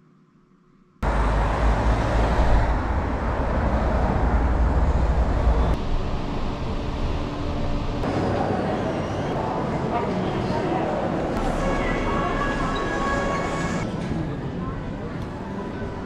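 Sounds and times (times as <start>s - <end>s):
road noise inside moving car: 1.0s - 8.0s
loud low rumble: 1.0s - 8.2s.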